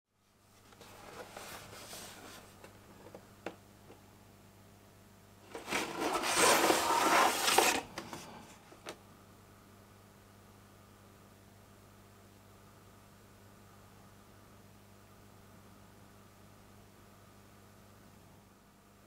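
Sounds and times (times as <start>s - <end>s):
rubbing of cardboard box: 0.8s - 2.6s, 5.5s - 7.9s
plastic bag rustling: 5.5s - 7.9s.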